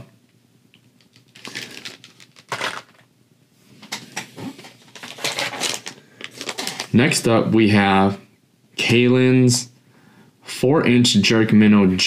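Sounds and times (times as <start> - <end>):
plastic packaging crinkling: 0.9 - 3.1, 3.8 - 7.1.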